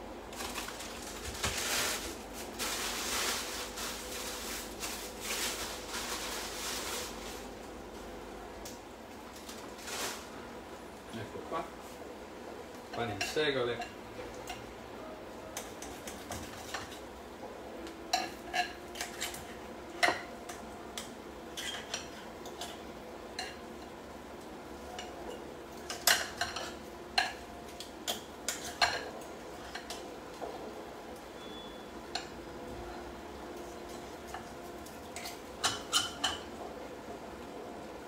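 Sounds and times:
cutlery clinking against dishes: 0:35.1 - 0:36.5.

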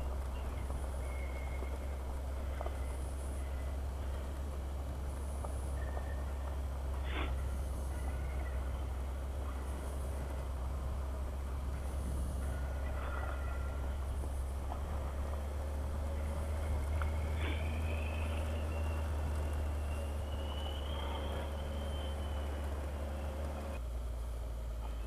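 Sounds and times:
faint rising whine: 0:00.0 - 0:25.0
motorcycle engine rumbling: 0:00.0 - 0:25.0.

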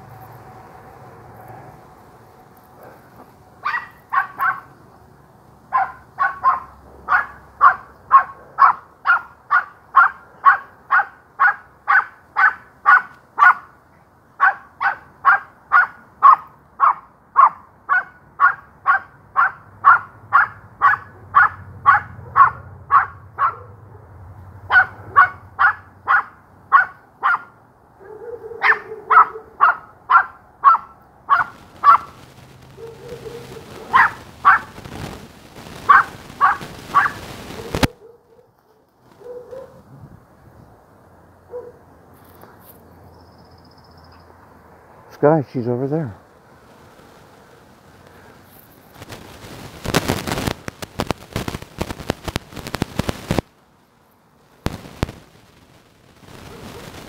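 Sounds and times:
small dog barking: 0:03.6 - 0:04.8, 0:05.7 - 0:13.8, 0:14.4 - 0:24.1, 0:24.7 - 0:32.2, 0:32.8 - 0:34.8, 0:35.8 - 0:39.8, 0:41.5 - 0:41.8, 0:56.4 - 0:57.0.

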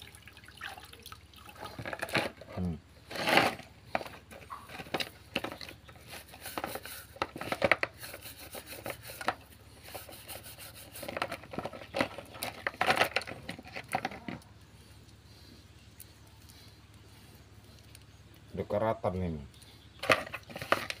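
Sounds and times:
brush scrubbing chain in liquid: 0:05.4 - 0:13.8.

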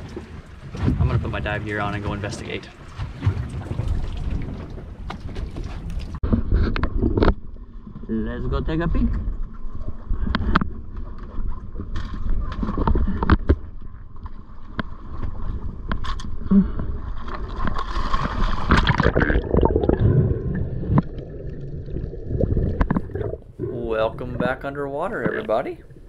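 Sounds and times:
underwater bubbling: 0:15.0 - 0:26.0
splash into water: 0:17.4 - 0:21.0.

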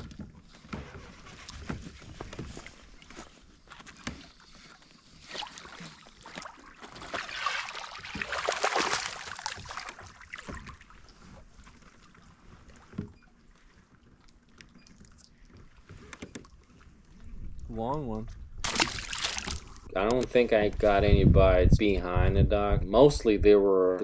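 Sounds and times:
fish splashing at surface: 0:05.3 - 0:10.9, 0:18.6 - 0:19.8
fish thumping on kayak: 0:05.7 - 0:10.9, 0:18.6 - 0:19.8.

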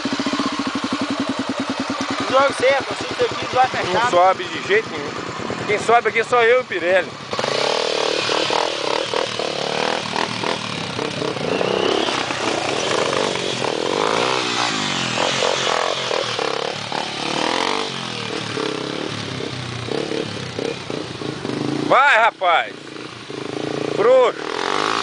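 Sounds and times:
dirt bike engines revving: 0:00.0 - 0:25.0.

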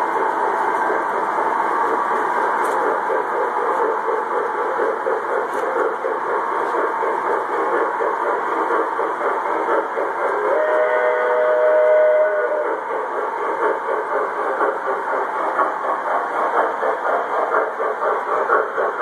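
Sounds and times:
model train rumbling on track: 0:00.0 - 0:19.0
two-note train whistle: 0:10.4 - 0:12.8.

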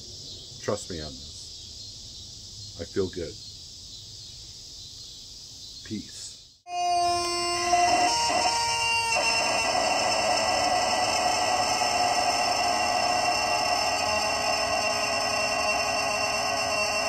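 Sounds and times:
rubber chicken toy squawking: 0:06.7 - 0:10.2.

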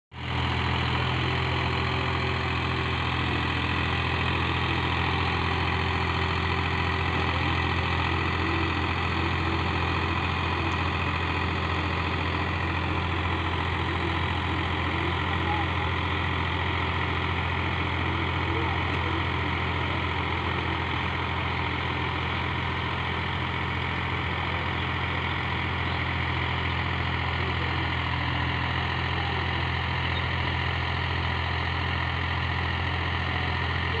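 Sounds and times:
tractor diesel engine under load: 0:00.1 - 0:34.0.

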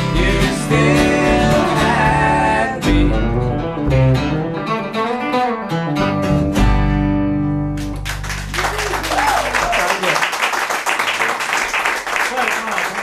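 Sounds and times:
plucked double bass: 0:00.0 - 0:08.2
acoustic guitar: 0:00.0 - 0:09.6
electric guitar: 0:00.0 - 0:09.7.

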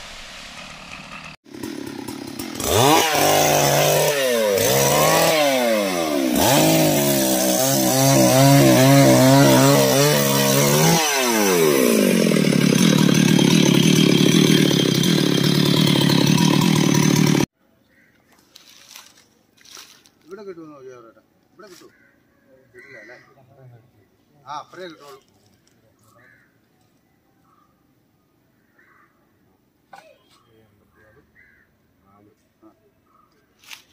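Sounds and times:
chainsaw revving: 0:00.0 - 0:17.5.

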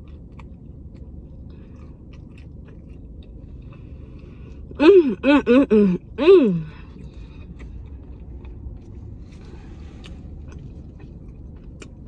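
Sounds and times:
faint chewing: 0:00.0 - 0:04.8, 0:06.8 - 0:12.0
low steady rumble: 0:00.0 - 0:12.0
woman humming with mouth full: 0:04.8 - 0:06.7.

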